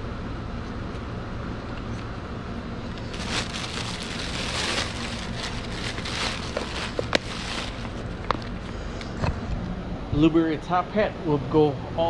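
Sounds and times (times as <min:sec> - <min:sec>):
steady low hum: 0:00.0 - 0:12.0
plastic bag crinkling: 0:02.9 - 0:08.6.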